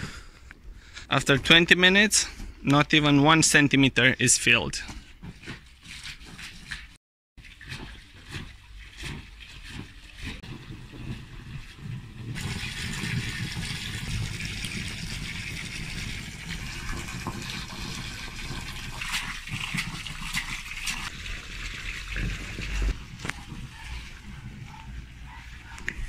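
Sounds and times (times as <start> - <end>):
hose water splashing into pool: 5.3 - 26.0.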